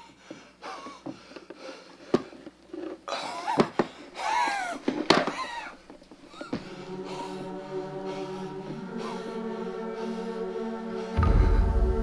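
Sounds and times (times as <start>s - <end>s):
man breathing hard wheezing: 3.1s - 12.0s.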